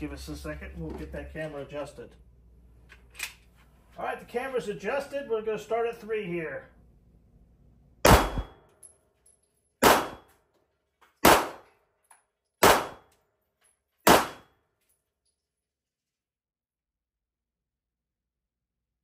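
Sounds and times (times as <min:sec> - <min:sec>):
handgun shots: 0:08.0 - 0:08.7, 0:09.8 - 0:10.3, 0:11.2 - 0:11.7, 0:12.6 - 0:13.1, 0:14.0 - 0:14.5.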